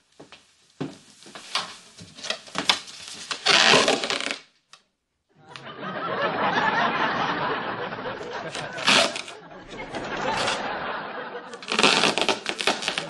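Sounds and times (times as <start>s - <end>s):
studio audience laughing: 5.4s - 12.1s.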